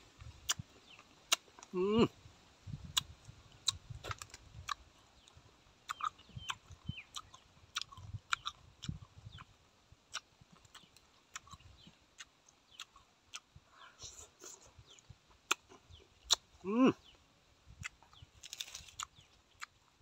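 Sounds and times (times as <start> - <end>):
close-up chewing: 0.2 - 1.8, 2.8 - 13.6, 17.8 - 20.0.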